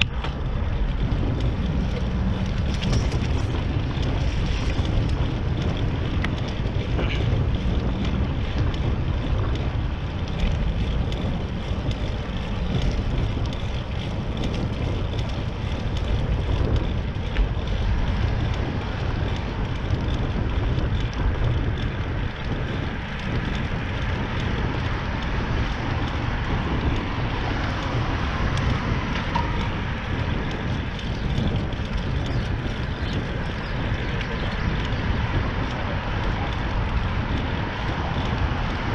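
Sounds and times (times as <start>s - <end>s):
bicycle road noise: 0.0s - 38.9s
wind rumble on microphone: 0.0s - 38.9s.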